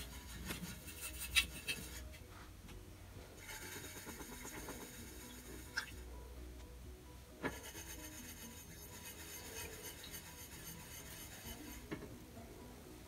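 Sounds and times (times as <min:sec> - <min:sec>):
paintbrush scraping metal pan: 0:00.0 - 0:02.2, 0:03.4 - 0:06.0, 0:07.4 - 0:12.1
brush tapping: 0:03.6 - 0:06.0.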